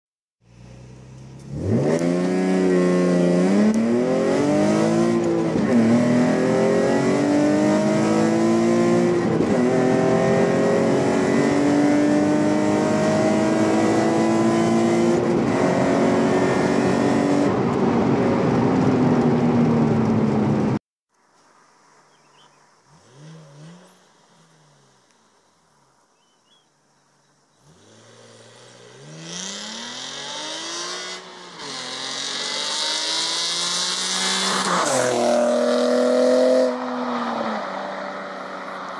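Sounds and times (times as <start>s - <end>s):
car engine accelerating hard: 1.2s - 20.8s, 27.6s - 38.9s.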